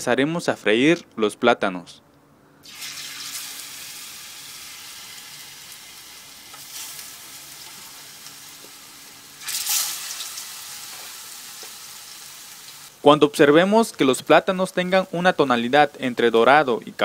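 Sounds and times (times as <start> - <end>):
plantain sizzling in hot oil: 2.6 - 13.0.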